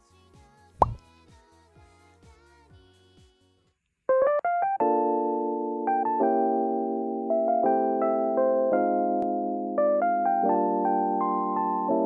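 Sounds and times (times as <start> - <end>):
electric piano music: 4.6 - 12.0.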